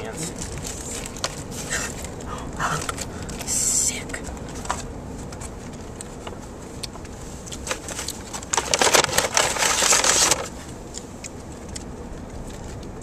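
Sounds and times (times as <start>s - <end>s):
car cabin road noise: 0.0s - 13.0s
paper bag crinkling: 0.2s - 3.6s, 7.5s - 10.7s.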